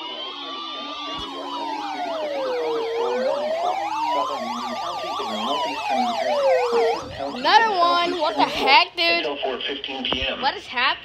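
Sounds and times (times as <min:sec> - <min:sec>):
siren wail rising and falling: 0:00.0 - 0:08.7
fast electronic yelps: 0:00.0 - 0:08.8.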